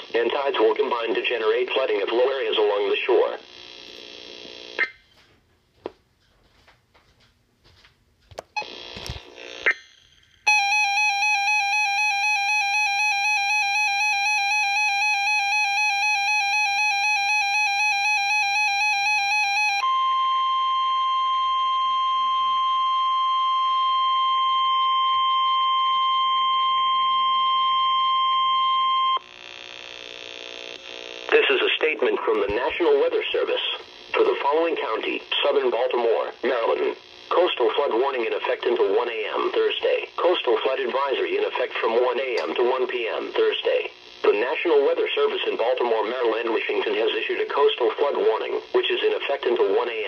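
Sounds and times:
warbling alarm tone: 9.7 - 24.1.

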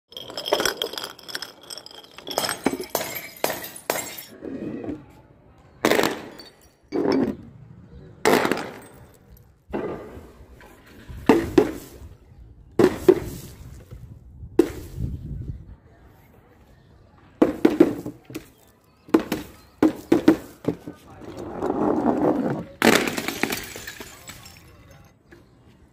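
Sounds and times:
glass jars shattering: 0.1 - 4.3, 5.9 - 7.4, 22.8 - 25.2.

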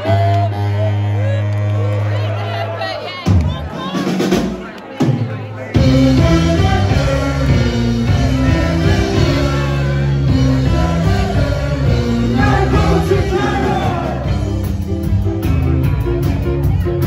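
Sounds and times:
live rock band playing: 3.2 - 17.0
person singing: 5.8 - 14.6.

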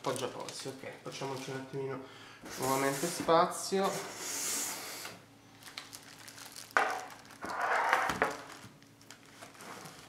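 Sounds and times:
plastic packaging crinkling: 0.0 - 1.6, 5.5 - 10.0.

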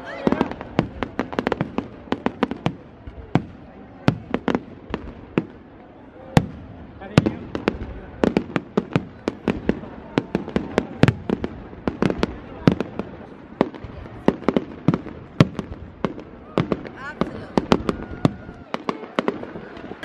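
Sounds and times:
fireworks bangs: 0.0 - 20.0
people's voices: 0.0 - 20.0.

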